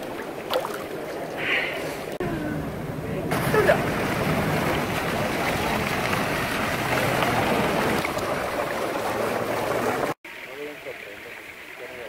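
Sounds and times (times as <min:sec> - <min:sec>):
water cascade splashing into pool: 0:03.3 - 0:12.0.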